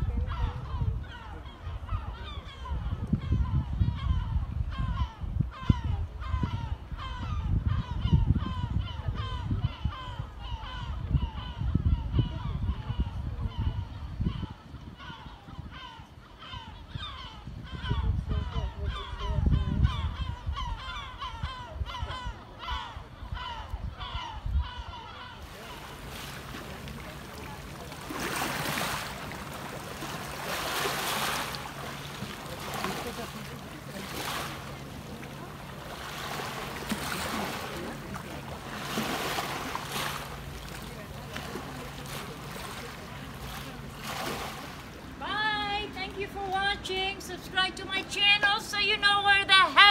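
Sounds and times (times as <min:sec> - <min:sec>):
gulls calling: 0:00.0 - 0:49.9
low uneven rumbling: 0:24.2 - 0:49.9
waves washing over pebbles: 0:25.5 - 0:42.9.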